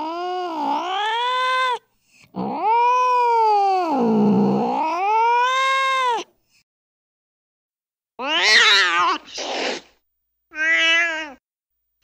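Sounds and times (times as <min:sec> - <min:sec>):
angry cat yowling: 0:00.0 - 0:01.8, 0:02.4 - 0:06.3, 0:08.2 - 0:09.5, 0:10.5 - 0:11.4.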